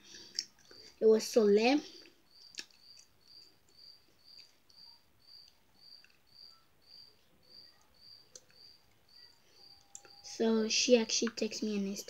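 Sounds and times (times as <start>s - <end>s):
cricket chirping: 2.2s - 11.2s.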